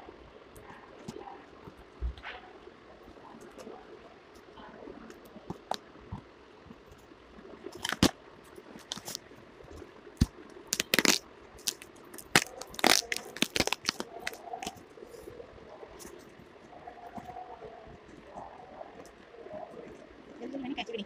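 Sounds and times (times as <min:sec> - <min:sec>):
plastic wrap crackling: 0:07.7 - 0:09.2, 0:10.2 - 0:14.9
scissors cutting plastic wrap: 0:07.8 - 0:08.1, 0:08.8 - 0:09.2, 0:10.7 - 0:14.8.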